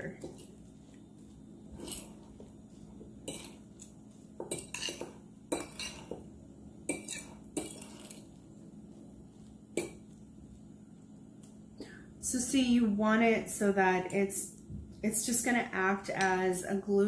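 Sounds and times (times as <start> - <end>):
fork clinking against bowl: 3.2 - 3.6, 4.5 - 6.1, 6.9 - 8.2.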